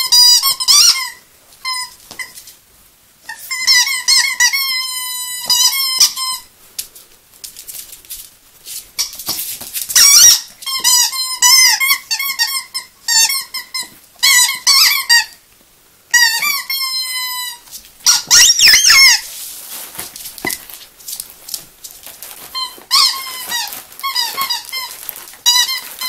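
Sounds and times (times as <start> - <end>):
squeaky dog toy squeaking: 0.0 - 2.4, 3.2 - 6.5, 9.9 - 15.4, 16.1 - 19.3, 22.4 - 26.0.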